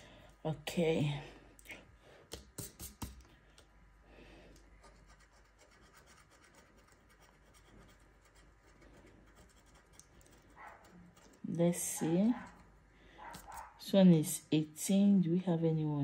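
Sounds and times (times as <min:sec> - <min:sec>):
fingernail scratching card: 0:02.4 - 0:03.2, 0:04.8 - 0:11.5.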